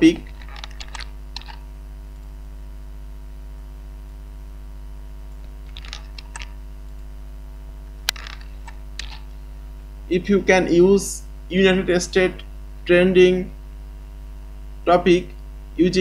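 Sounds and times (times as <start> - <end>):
electrical mains hum: 0.0 - 16.0
keyboard and mouse clicks: 0.2 - 2.3, 5.4 - 7.1, 8.0 - 9.3.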